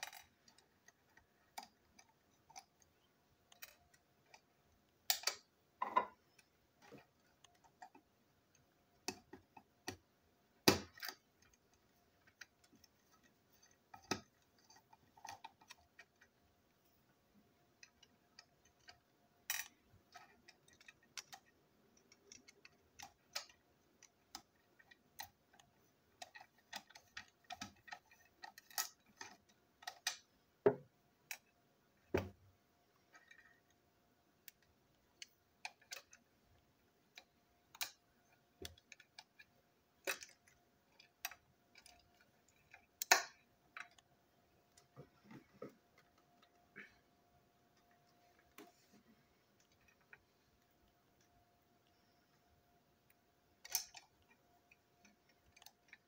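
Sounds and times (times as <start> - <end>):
small plastic parts handled: 0.0 - 16.8, 17.7 - 32.4.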